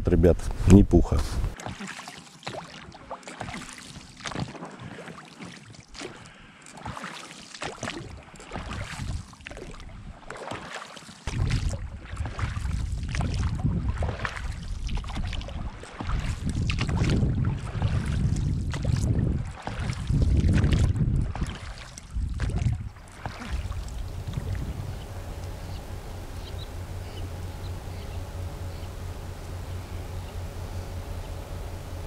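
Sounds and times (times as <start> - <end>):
wind rumbling on microphone: 0.0 - 1.6, 11.3 - 32.0
oars splashing in water: 1.5 - 32.0.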